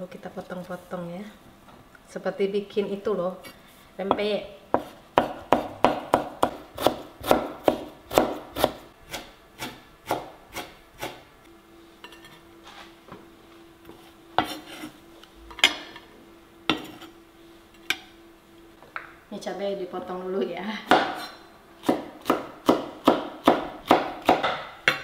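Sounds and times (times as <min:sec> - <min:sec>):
faint steady hum: 0:00.0 - 0:25.0
knife chopping on wooden board: 0:04.1 - 0:11.2, 0:20.9 - 0:25.0.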